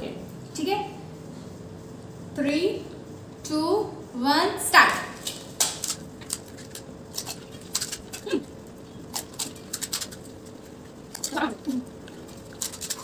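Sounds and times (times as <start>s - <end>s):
crisp shells crunching: 5.4s - 13.0s.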